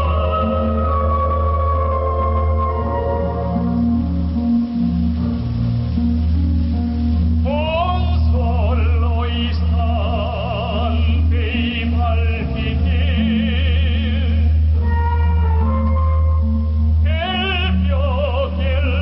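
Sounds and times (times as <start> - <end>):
man singing operatically: 0.0 - 1.9, 7.4 - 16.1, 17.0 - 19.0
instrumental accompaniment with bass: 0.0 - 19.0.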